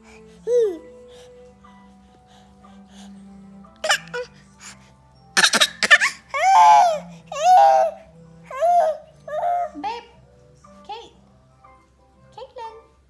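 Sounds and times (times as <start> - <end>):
faint background music: 0.0 - 13.0
baby crying and calling: 3.8 - 4.3, 5.4 - 9.9.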